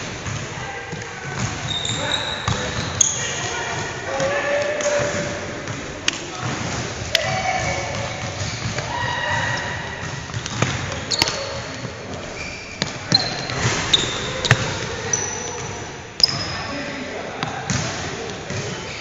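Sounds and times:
sneakers squeaking on wood: 0:01.3 - 0:03.6, 0:07.2 - 0:16.9.

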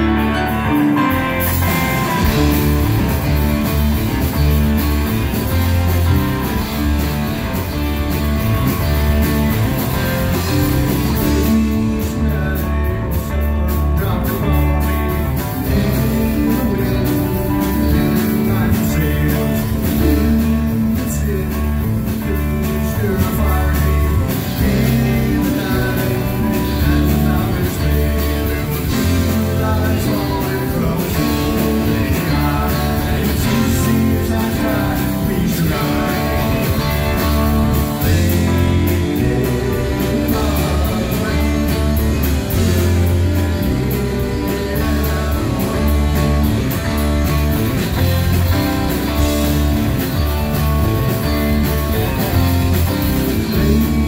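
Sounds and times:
bass guitar: 0:00.0 - 0:54.0
drum kit: 0:00.0 - 0:54.0
electric guitar: 0:00.0 - 0:54.0
man singing into microphone: 0:11.0 - 0:17.1, 0:17.8 - 0:46.4, 0:53.2 - 0:54.0.

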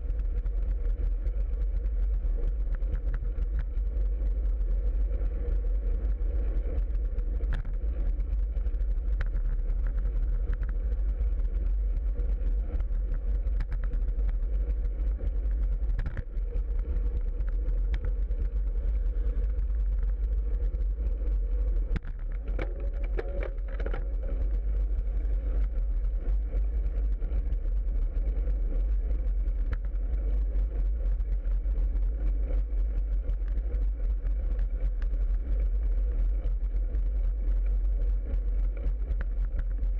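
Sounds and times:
light clicks and rattles: 0:21.9 - 0:24.6.

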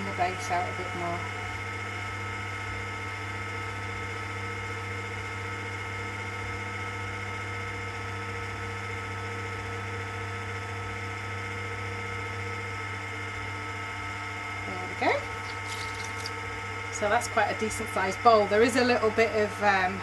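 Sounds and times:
potter's wheel motor humming: 0:14.6 - 0:20.0.

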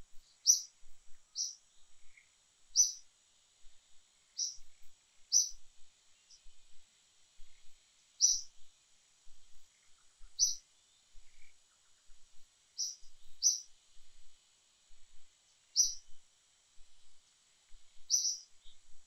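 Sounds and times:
bird chirps: 0:00.1 - 0:03.1, 0:04.4 - 0:05.6, 0:07.5 - 0:08.6, 0:09.6 - 0:12.1, 0:12.8 - 0:13.8, 0:15.8 - 0:16.2, 0:18.0 - 0:18.8
insects hissing: 0:00.2 - 0:03.1, 0:04.3 - 0:05.6, 0:07.4 - 0:08.7, 0:09.6 - 0:10.6, 0:12.8 - 0:14.3, 0:15.8 - 0:16.0, 0:18.0 - 0:18.8.

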